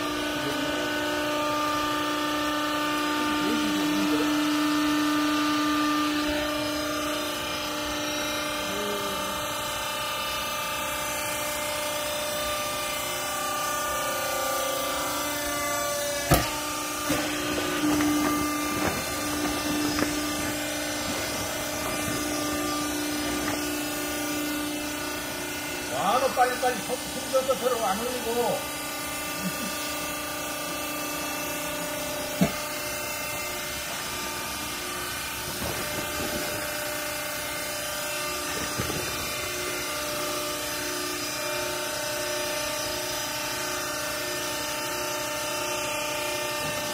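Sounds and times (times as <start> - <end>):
hydraulic baler motor hum: 0.0 - 46.9
sharp knocks: 16.2 - 20.4.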